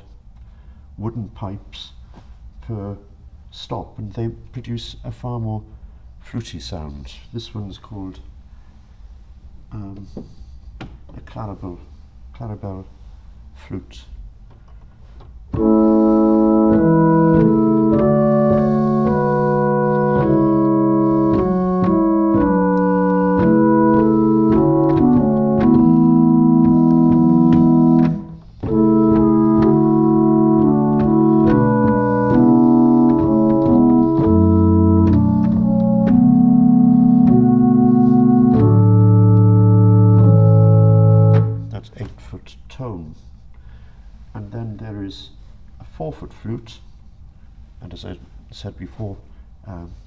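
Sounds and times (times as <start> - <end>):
low organ bass notes: 15.4 - 41.9
pipe organ sustained chords: 15.5 - 41.8.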